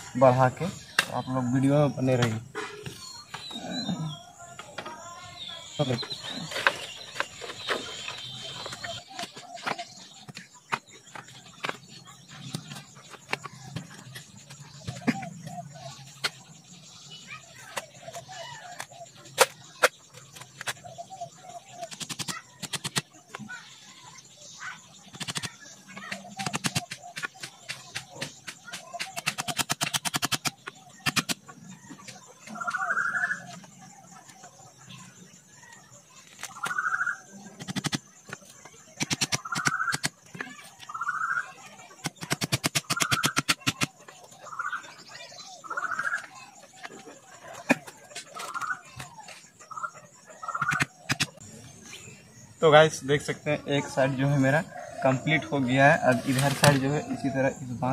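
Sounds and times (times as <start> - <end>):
hens clucking: 36.5 - 51.4
bird cooing: 54.4 - 57.8.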